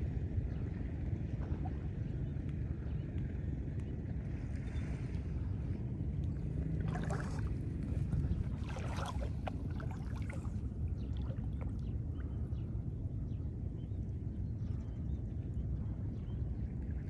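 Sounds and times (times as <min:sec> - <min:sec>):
wind rumble on microphone: 0:00.0 - 0:17.0
water lapping at rocks: 0:06.2 - 0:12.4
splashy water washes: 0:06.8 - 0:10.6.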